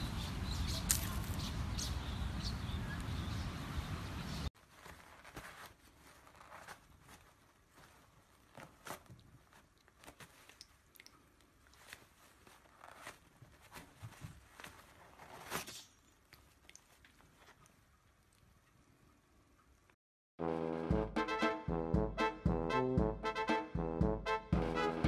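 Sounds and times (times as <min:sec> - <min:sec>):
cat tearing paper: 0:11.8 - 0:16.0.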